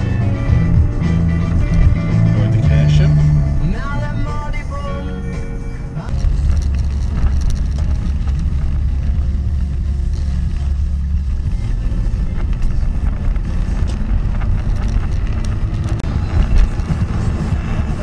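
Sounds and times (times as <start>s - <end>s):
car engine and road noise: 0.0s - 18.0s.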